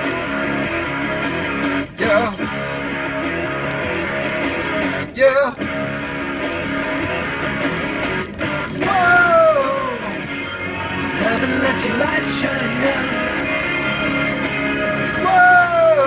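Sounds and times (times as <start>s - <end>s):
strummed guitar: 0.0s - 16.0s
person singing wavering phrases: 2.0s - 2.6s, 5.1s - 5.6s, 8.8s - 10.2s, 11.1s - 13.3s, 15.1s - 16.0s.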